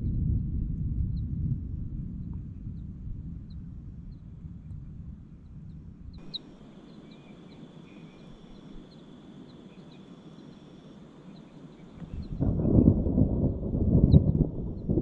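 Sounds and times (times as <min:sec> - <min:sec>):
low rumble: 0:00.0 - 0:10.8, 0:11.4 - 0:15.0
soft steady hiss: 0:03.5 - 0:15.0
insects chirping: 0:06.2 - 0:15.0
steady high insect trill: 0:06.2 - 0:15.0.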